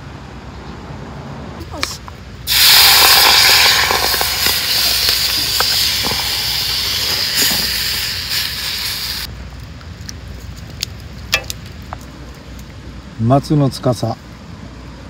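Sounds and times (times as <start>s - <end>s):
stew sizzling in a hot skillet: 2.5s - 9.3s.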